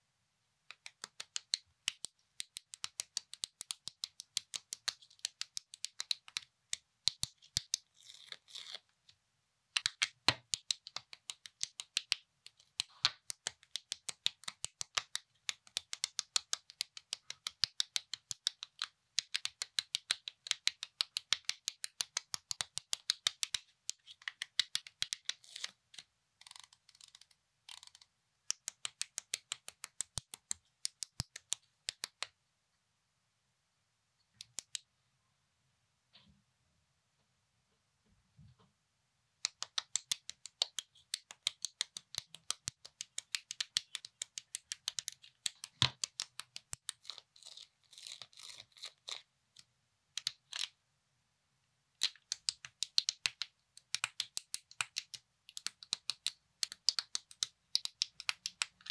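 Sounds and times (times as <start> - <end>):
plastic pieces rubbing: 40.7 - 49.3.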